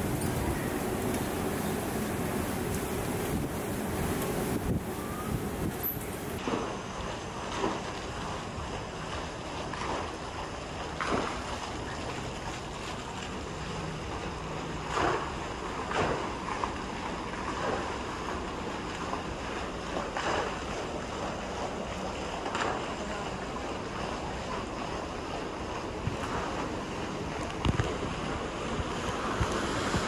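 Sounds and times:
wind buffeting microphone: 0.0s - 6.4s
wind and sea rushing: 0.0s - 30.0s.

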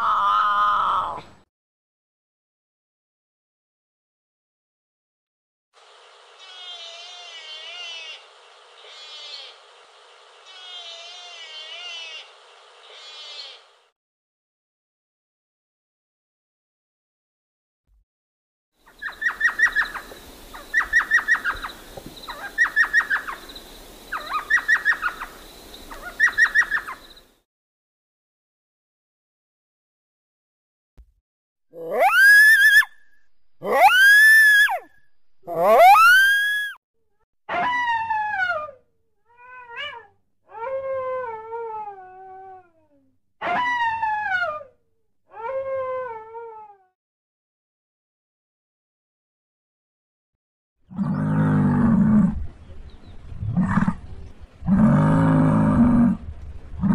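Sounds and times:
owl yelping calls: 18.9s - 23.4s, 24.1s - 27.1s, 31.8s - 34.9s, 35.5s - 36.8s
coyote howling: 31.8s - 36.8s, 37.5s - 38.8s, 39.4s - 42.7s, 43.4s - 44.6s, 45.3s - 46.8s.

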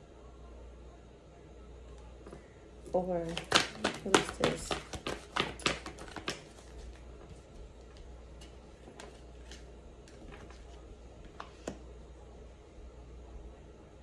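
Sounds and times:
cards clicking and tapping: 3.2s - 10.6s.

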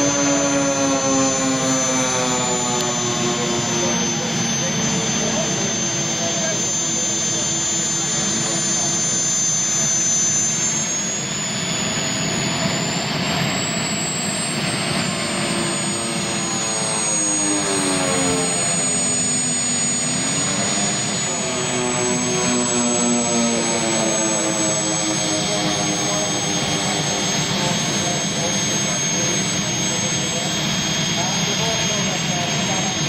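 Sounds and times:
model plane turboprop engines: 0.0s - 33.0s.

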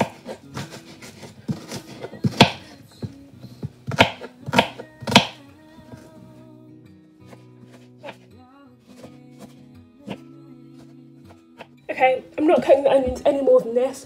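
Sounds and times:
knife chopping on cutting board: 0.0s - 2.7s, 3.8s - 5.4s
background music: 0.0s - 14.0s.

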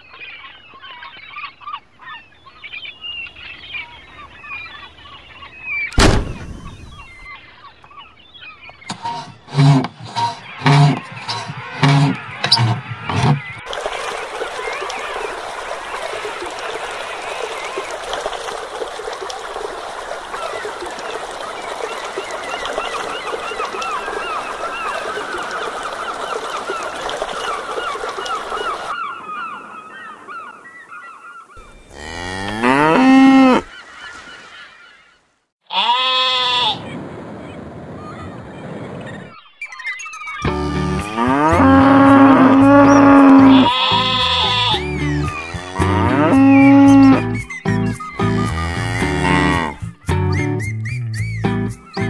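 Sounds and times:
water trickling into pool: 13.6s - 29.0s, 40.4s - 49.8s
cow mooing: 31.9s - 33.7s, 40.5s - 44.8s, 45.4s - 47.3s, 48.4s - 49.8s.

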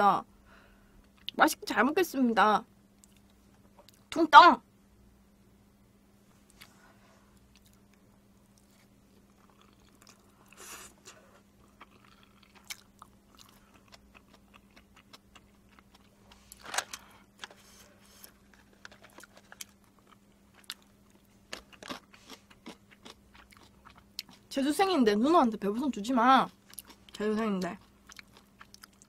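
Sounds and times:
soft chewing: 3.0s - 4.1s, 6.4s - 24.5s, 26.4s - 29.0s.

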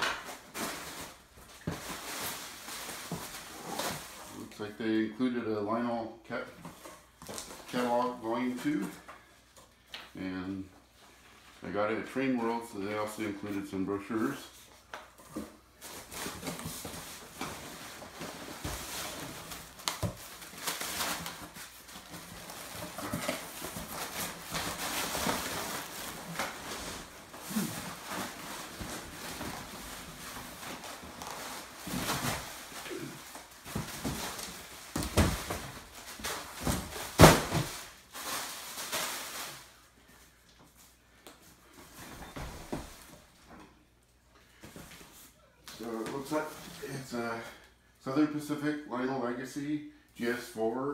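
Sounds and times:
plastic packing crinkling: 15.8s - 39.8s.

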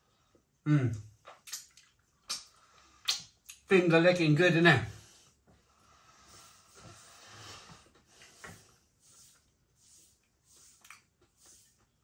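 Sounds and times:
small mouth click: 0.9s - 3.6s
chewing and lip sounds: 1.2s - 3.7s.

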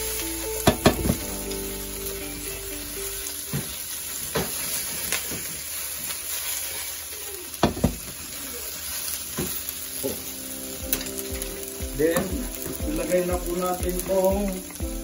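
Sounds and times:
food sizzling in a wok: 0.0s - 15.0s
sharp knocks in a wok: 0.7s - 1.2s, 7.6s - 8.1s.

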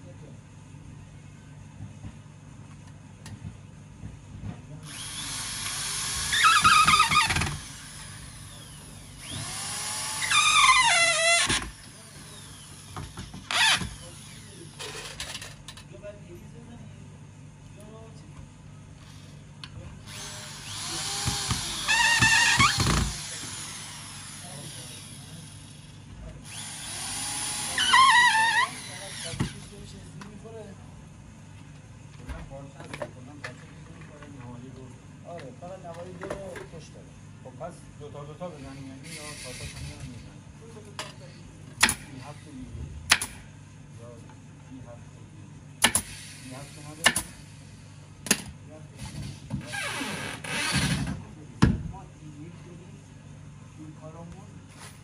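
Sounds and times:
power drill whining: 4.9s - 15.4s, 20.1s - 29.8s, 39.0s - 40.0s, 49.6s - 51.0s
steady hiss: 45.9s - 48.0s.

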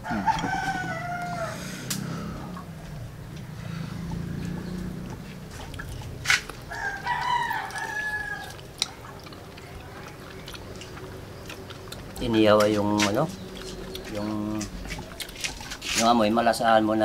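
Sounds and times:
rooster crowing: 0.0s - 2.8s, 6.6s - 8.7s.

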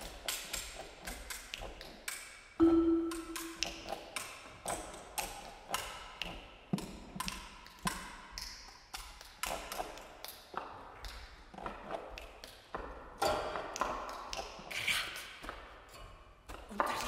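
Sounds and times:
marimba tapping: 2.6s - 3.9s.

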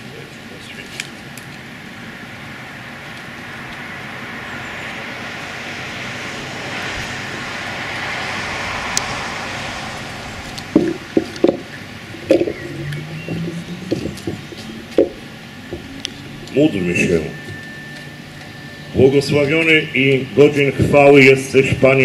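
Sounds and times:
tyre and road noise: 0.0s - 22.0s
short knocks: 13.3s - 15.2s.

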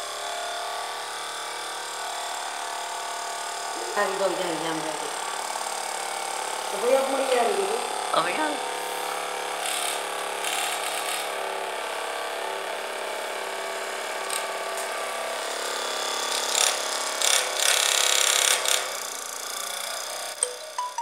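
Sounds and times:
small motor whine: 0.0s - 21.0s
short hissy bursts: 8.7s - 9.2s.

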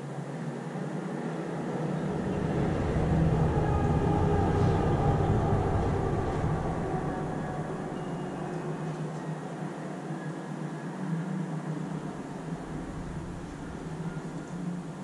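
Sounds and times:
steady low hum: 0.8s - 10.0s, 10.7s - 15.0s
passing vehicle rumble: 1.6s - 9.1s, 12.0s - 15.0s.

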